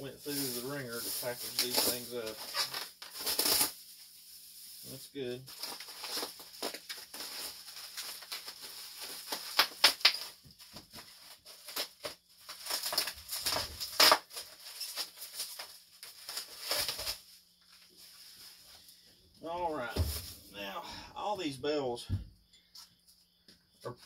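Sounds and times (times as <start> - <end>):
bubble wrap crinkling: 0.1 - 18.9.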